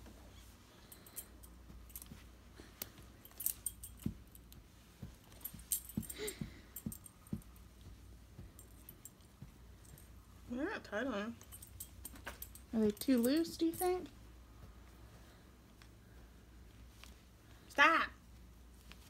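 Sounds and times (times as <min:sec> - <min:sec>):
metal harness jingling: 0:00.7 - 0:07.7, 0:11.3 - 0:14.1.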